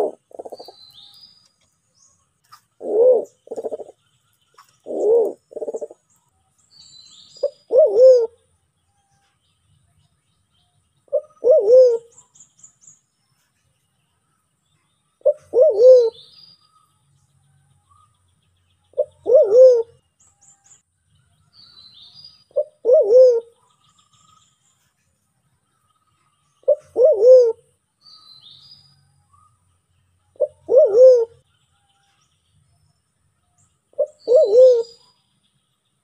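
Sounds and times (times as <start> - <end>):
pigeon calling: 0.0 - 0.8, 2.8 - 3.9, 4.8 - 6.0, 7.4 - 8.4, 11.1 - 12.1, 15.2 - 16.2, 19.0 - 19.9, 22.6 - 23.5, 26.6 - 27.6, 30.4 - 31.4, 34.0 - 35.0
faint high bird chirps: 0.0 - 36.0.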